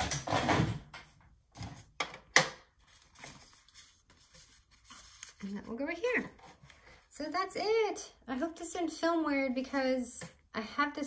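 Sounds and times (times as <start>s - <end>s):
paper rustling: 2.8s - 7.1s.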